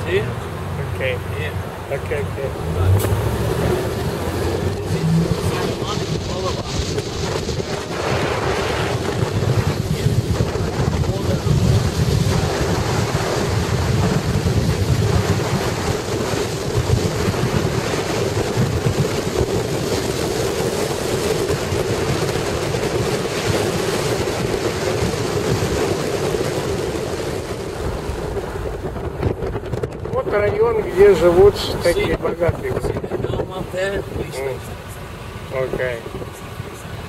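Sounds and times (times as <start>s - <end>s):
car road noise: 0.0s - 37.0s
wind rumbling on microphone: 0.0s - 37.0s.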